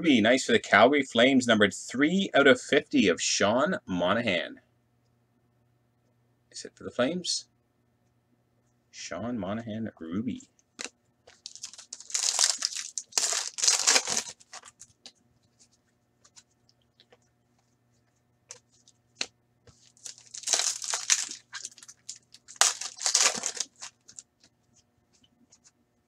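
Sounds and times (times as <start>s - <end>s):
foil wrappers tearing and crinkling: 11.4s - 14.9s, 19.8s - 24.2s.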